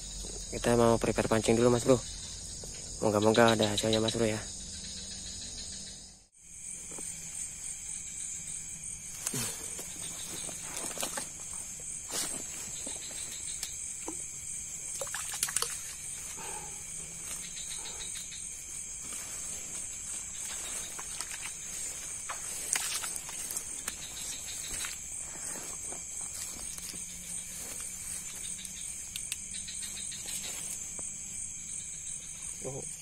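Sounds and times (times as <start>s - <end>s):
insects trilling: 0.0s - 33.0s.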